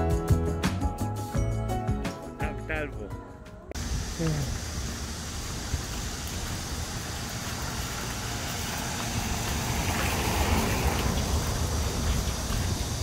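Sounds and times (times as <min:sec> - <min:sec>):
street noise: 0:00.0 - 0:13.0
vehicle engine rumbling: 0:03.8 - 0:13.0.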